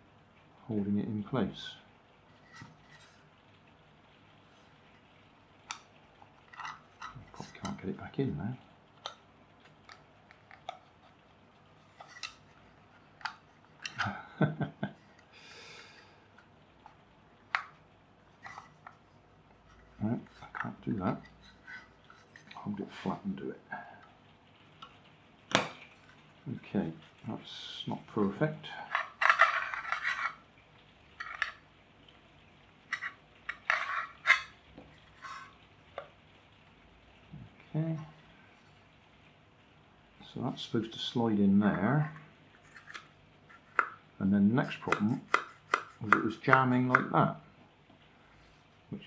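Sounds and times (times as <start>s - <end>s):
hard plastic parts scraping: 5.7s - 7.9s, 11.8s - 14.2s, 18.4s - 23.1s, 28.3s - 30.4s, 32.9s - 36.1s.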